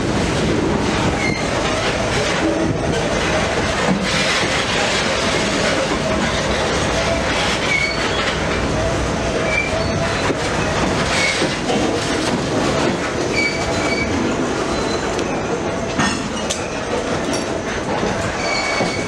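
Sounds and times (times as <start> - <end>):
train wheels rumbling on rails: 0.0 - 19.0
wheel squeals: 4.0 - 8.4, 9.4 - 11.7, 13.2 - 19.0.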